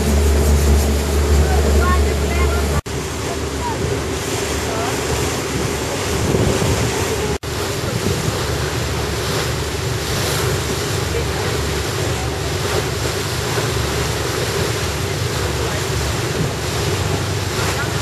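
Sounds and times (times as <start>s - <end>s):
wind on microphone: 0.0s - 11.0s
boat engine drone: 0.0s - 18.0s
water along hull: 0.0s - 18.0s.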